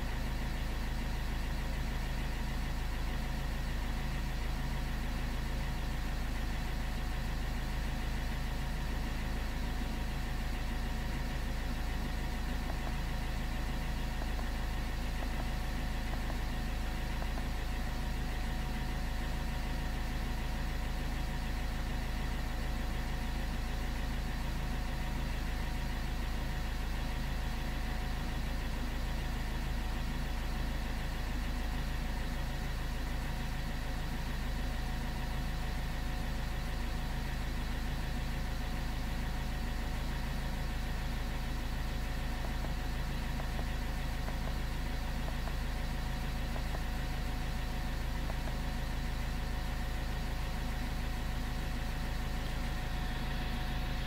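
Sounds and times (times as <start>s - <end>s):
low mechanical rumble: 0.0s - 54.0s.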